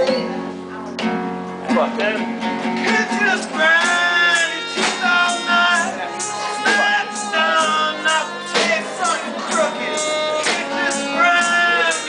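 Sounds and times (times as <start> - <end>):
acoustic guitar: 0.0 - 12.0
fiddle melody: 2.1 - 12.0
drum hits: 8.5 - 9.7.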